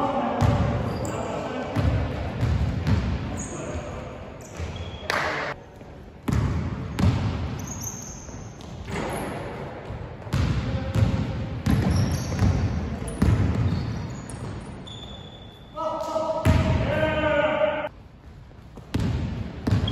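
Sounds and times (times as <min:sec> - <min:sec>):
shoes squeaking on floor: 0:00.8 - 0:01.4, 0:04.4 - 0:05.2, 0:07.6 - 0:09.4, 0:11.8 - 0:15.8.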